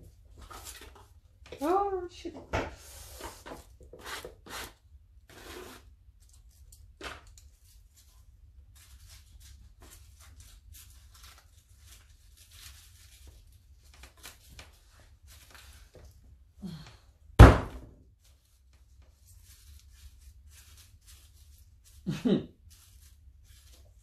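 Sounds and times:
paper rustling: 5.3 - 16.2, 18.2 - 24.0.

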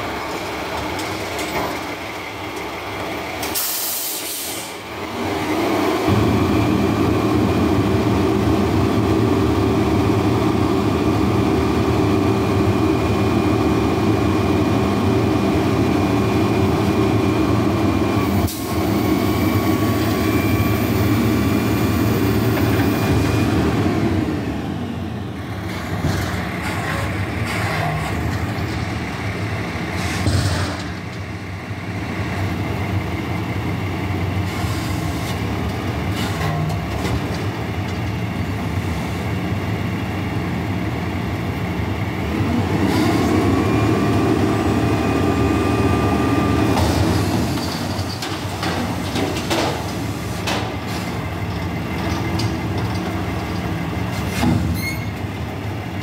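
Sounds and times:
garbage truck engine: 0.0 - 56.0
metal clanks and knocks: 46.8 - 51.0.

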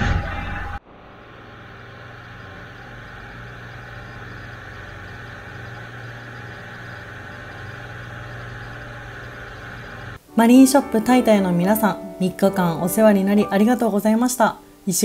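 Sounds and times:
boat engine drone: 0.0 - 10.3.

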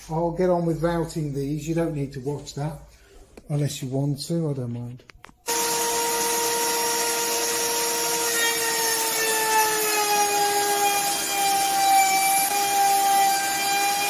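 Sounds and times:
electric router whining: 5.5 - 14.0.

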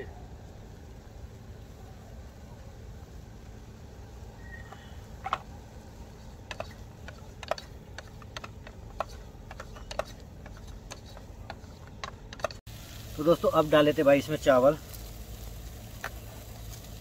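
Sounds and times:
metal spoon scraping cooking pot: 6.5 - 12.6.

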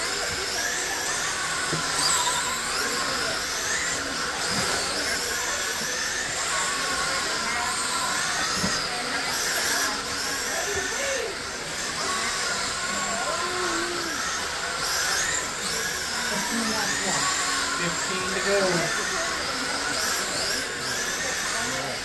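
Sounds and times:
rc car electric motors whining: 0.0 - 22.0.

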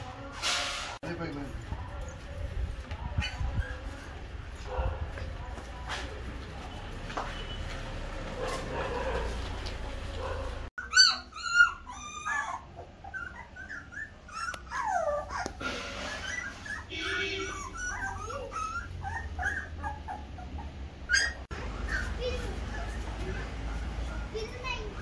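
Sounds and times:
puppies whimpering and squealing: 3.1 - 4.2, 10.8 - 23.8
puppy yips: 3.2 - 4.1, 10.3 - 23.5.

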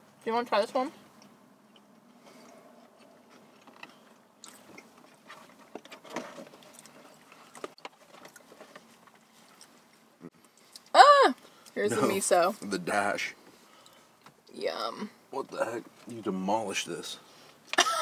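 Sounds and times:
people chewing food: 1.1 - 12.1, 13.5 - 14.5.

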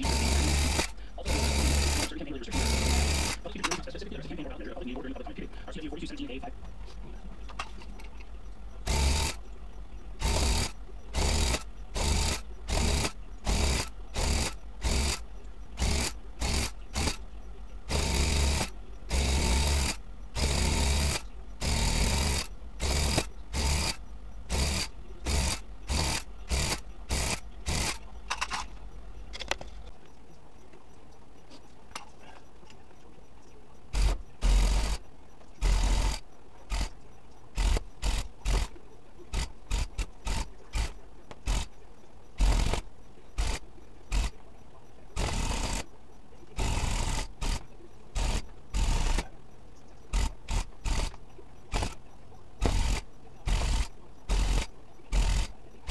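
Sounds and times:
tufting gun bursts: 0.0 - 3.9, 8.8 - 9.4, 10.2 - 17.2, 17.9 - 28.5, 33.9 - 35.0, 35.6 - 38.7, 39.3 - 41.8, 42.4 - 44.4, 45.2 - 45.9, 46.6 - 49.3, 50.1 - 52.0, 52.6 - 55.9.

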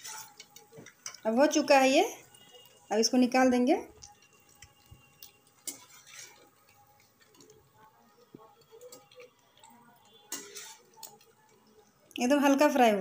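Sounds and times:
steel spatula clinking on pan: 10.3 - 11.2.

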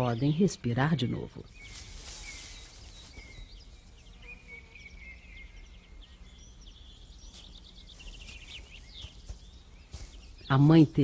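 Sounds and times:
quiet woodland ambience: 0.0 - 11.0
songbirds chirping: 0.0 - 11.0.

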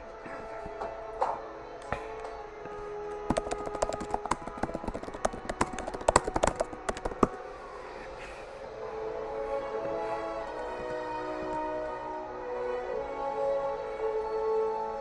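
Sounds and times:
sharp clicks and taps: 3.1 - 7.4.

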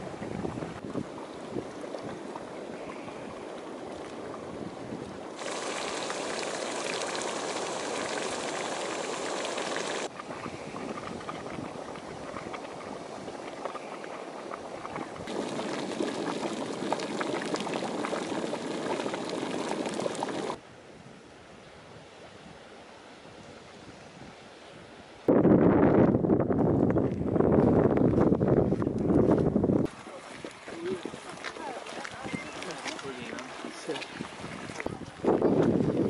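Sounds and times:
mud pools bubbling: 0.0 - 20.6, 29.8 - 36.0
faint hiss: 5.4 - 10.1.

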